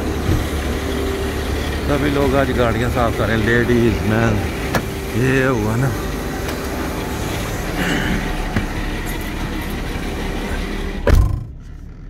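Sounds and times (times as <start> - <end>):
car door shutting: 0.0 - 0.8, 4.5 - 5.1, 6.4 - 12.0.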